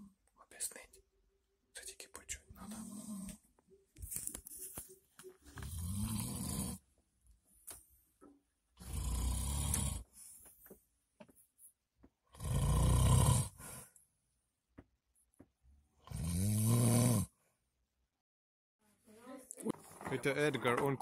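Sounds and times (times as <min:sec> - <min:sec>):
person snoring: 0:02.6 - 0:03.4, 0:05.6 - 0:06.8, 0:08.8 - 0:10.1, 0:12.3 - 0:13.8, 0:16.1 - 0:17.3.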